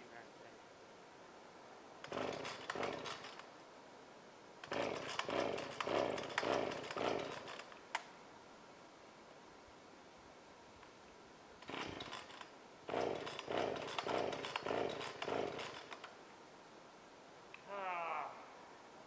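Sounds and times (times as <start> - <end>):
chainsaw recoil starter pulls: 2.0 - 3.5, 4.6 - 7.8, 11.6 - 16.1.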